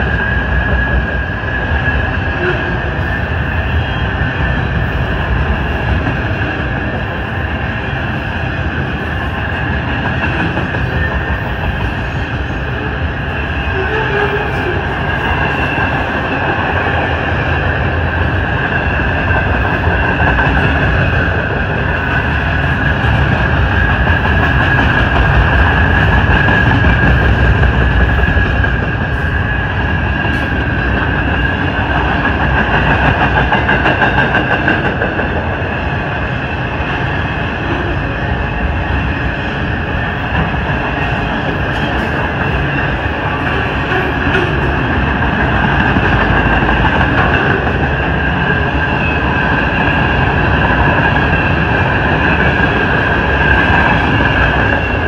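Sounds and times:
train wheels rumbling on rail: 0:00.0 - 0:55.0
wheels clickety-clack: 0:09.9 - 0:12.0, 0:30.3 - 0:35.6, 0:40.3 - 0:55.0.

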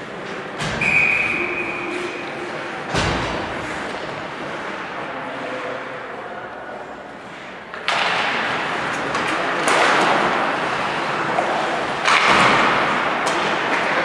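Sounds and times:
hockey sticks knocking boards: 0:07.7 - 0:14.0.

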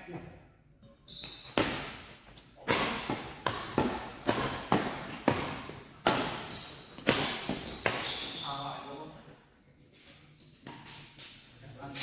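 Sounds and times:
rackets smacking shuttlecock: 0:01.5 - 0:08.3.

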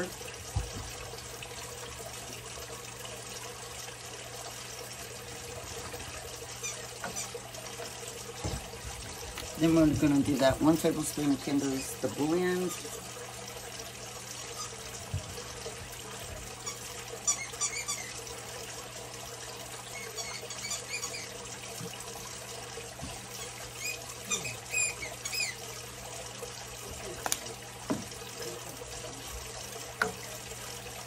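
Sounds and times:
whisk wires scraping pan: 0:06.6 - 0:07.4.

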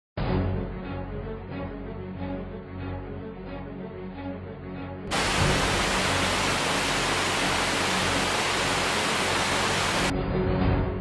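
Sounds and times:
background music: 0:00.2 - 0:11.0
rushing waterfall roar: 0:05.1 - 0:10.1.

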